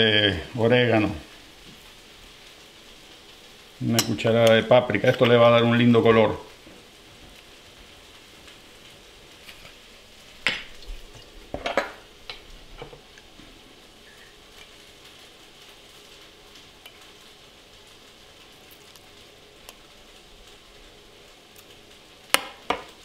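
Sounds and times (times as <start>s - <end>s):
onions sizzling in a pan: 0.0s - 23.0s.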